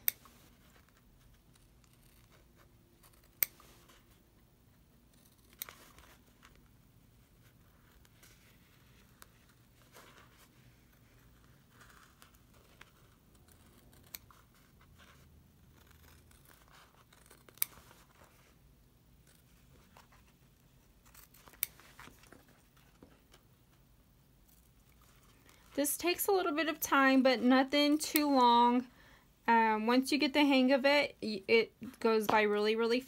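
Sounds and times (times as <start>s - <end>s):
scissors cutting leather: 1.4s - 4.0s, 5.1s - 6.2s, 10.9s - 18.0s, 21.0s - 21.8s.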